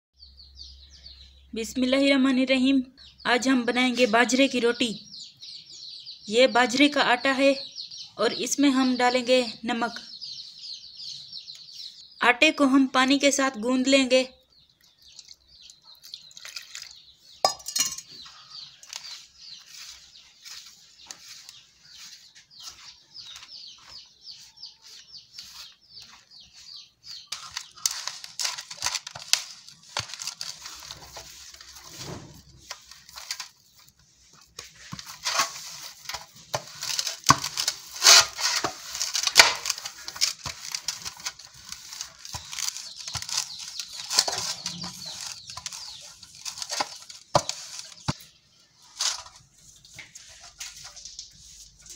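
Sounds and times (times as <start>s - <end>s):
hand kneading dough in metal pan: 27.3s - 51.9s.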